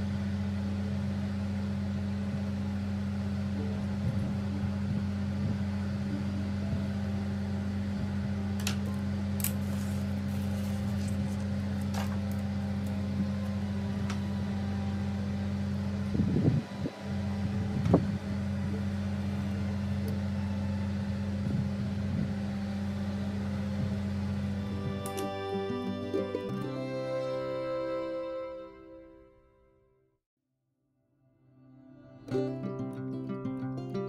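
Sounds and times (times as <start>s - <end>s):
motor humming: 0.0s - 28.6s.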